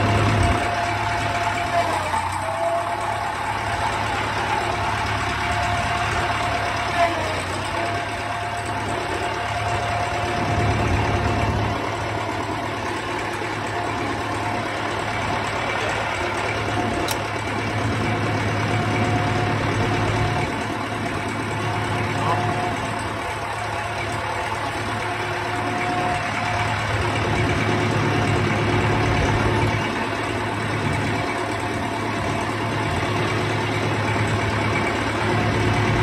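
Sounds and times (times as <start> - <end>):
engine idling with whine: 0.0 - 36.0.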